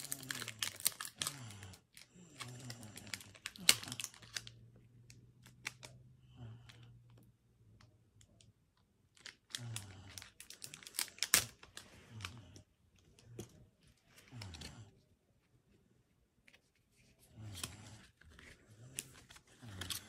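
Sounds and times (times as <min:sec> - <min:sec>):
foil wrapper crinkling and tearing: 0:00.0 - 0:04.6, 0:09.1 - 0:12.5.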